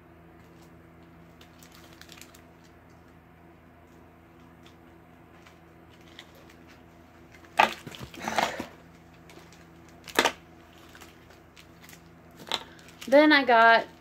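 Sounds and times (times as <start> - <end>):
faint steady hum: 0.0 - 14.0
packaging rustle: 1.3 - 2.9, 7.4 - 13.2.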